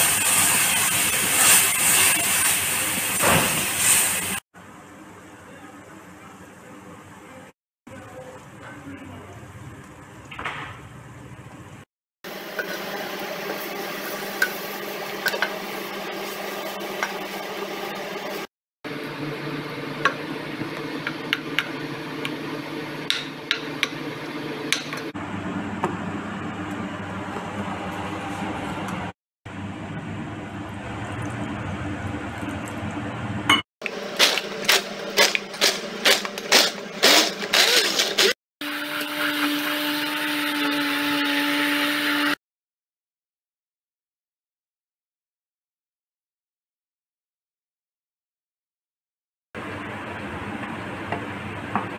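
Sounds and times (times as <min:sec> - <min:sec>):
immersion blender running: 0:12.3 - 0:25.4, 0:33.8 - 0:42.4.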